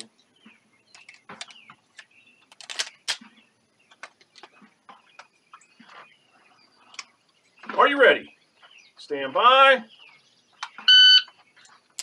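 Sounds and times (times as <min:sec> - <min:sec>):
faint bird chirps: 0:00.0 - 0:11.9
pistol and gear handling clicks: 0:00.9 - 0:03.2.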